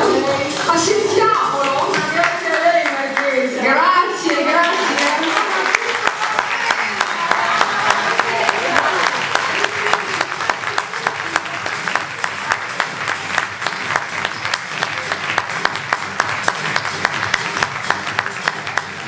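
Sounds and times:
sharp rhythmic claps: 4.2s - 19.0s
audience applauding: 4.3s - 19.0s.

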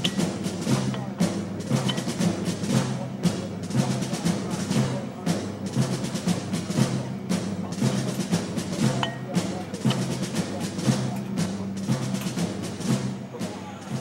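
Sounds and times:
drum and percussion beat: 0.0s - 14.0s.

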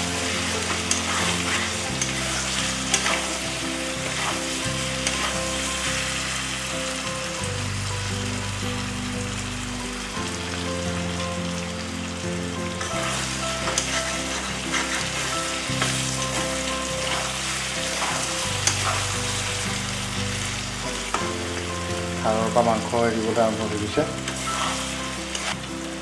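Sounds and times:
food sizzling in oil: 0.0s - 26.0s
spatula scraping pan: 0.1s - 5.8s, 12.8s - 20.5s.

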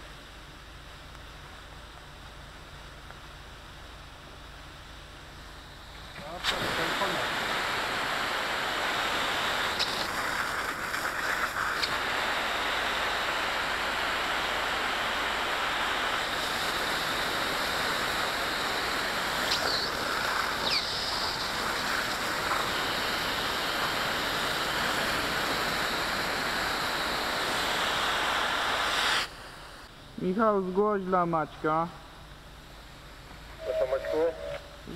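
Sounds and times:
water spraying from hose: 5.8s - 29.9s.

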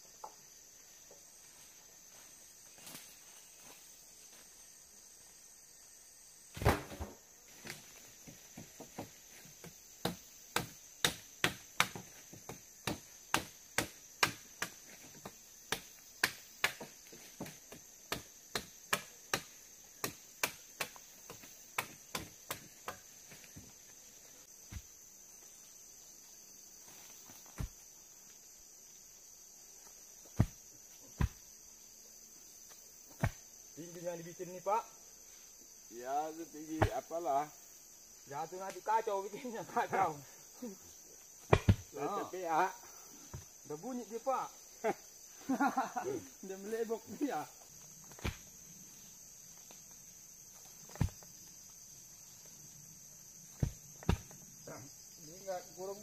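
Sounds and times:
sharp chopping of wood: 6.6s - 7.8s, 8.9s - 23.4s, 30.3s - 30.6s, 31.2s - 31.4s, 33.1s - 33.4s, 36.8s - 37.0s, 41.4s - 42.0s, 48.1s - 48.5s, 50.9s - 51.2s, 53.5s - 54.4s.

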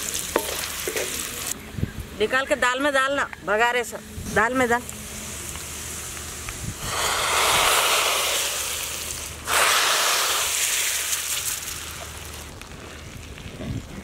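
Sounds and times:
hot oil sizzling loudly: 0.0s - 1.6s, 4.8s - 12.6s.

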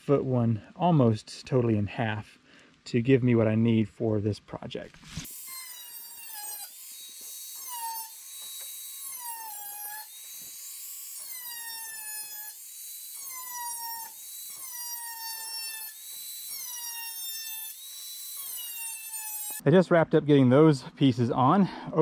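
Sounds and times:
angle grinder cutting metal: 5.0s - 19.6s.

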